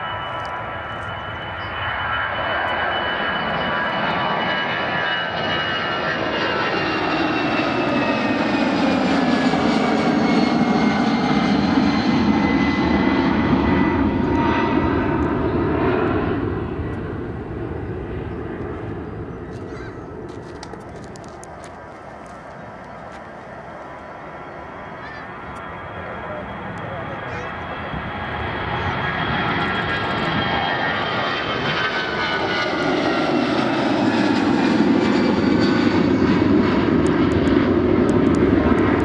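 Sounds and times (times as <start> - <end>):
jet engines roaring with high whine: 0.0 - 39.0.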